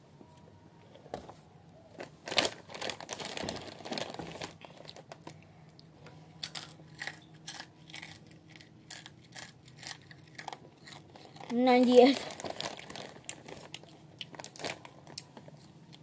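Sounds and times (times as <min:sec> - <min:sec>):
chip bag crinkling: 0:02.0 - 0:05.4, 0:06.4 - 0:16.0
chips crunching while chewed: 0:06.4 - 0:16.0.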